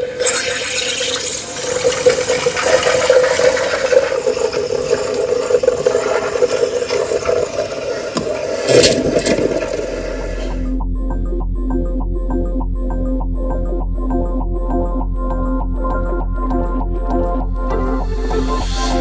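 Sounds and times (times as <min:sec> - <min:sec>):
steam wand frothing milk: 0:00.0 - 0:10.7.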